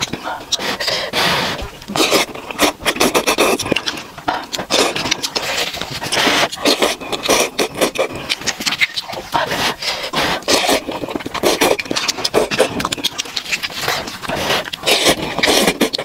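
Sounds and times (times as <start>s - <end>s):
person slurping noodles: 0.0s - 16.0s
chewing mouth smacks: 1.8s - 9.4s, 10.4s - 16.0s.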